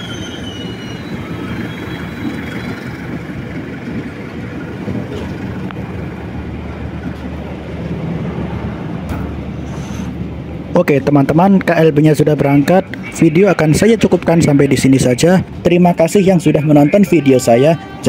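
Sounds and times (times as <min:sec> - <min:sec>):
faint high squeal: 0:00.0 - 0:02.9
train cars rumbling on rails: 0:00.0 - 0:18.0.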